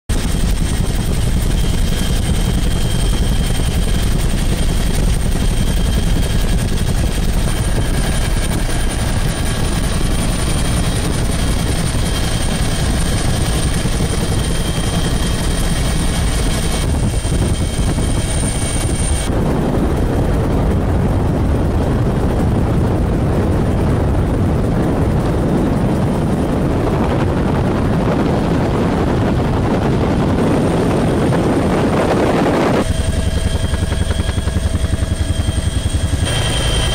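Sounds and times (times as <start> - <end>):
helicopter engine and rotor drone: 0.1 - 36.9
heavy rushing drone: 0.2 - 36.9
faint high whine: 32.5 - 36.9.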